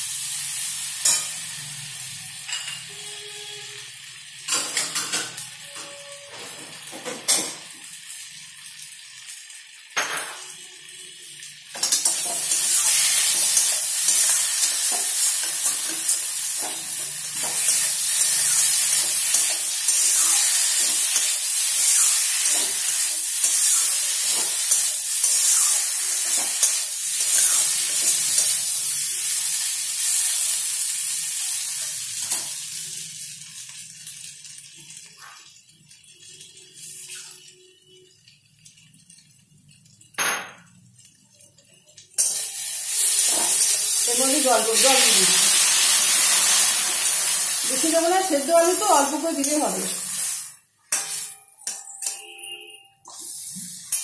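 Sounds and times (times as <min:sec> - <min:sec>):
potatoes sizzling in hot oil: 0:00.0 - 0:51.3, 0:53.1 - 0:54.0
metal spatula scraping a pan: 0:11.8 - 0:28.7, 0:42.2 - 0:52.3.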